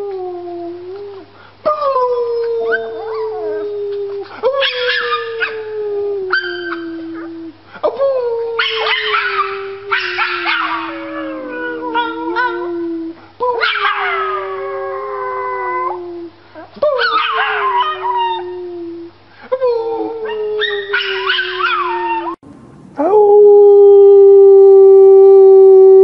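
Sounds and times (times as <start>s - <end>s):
puppy howling: 0.0s - 7.6s, 8.3s - 18.7s, 19.8s - 22.4s
puppy yipping: 17.0s - 18.4s, 20.6s - 22.4s.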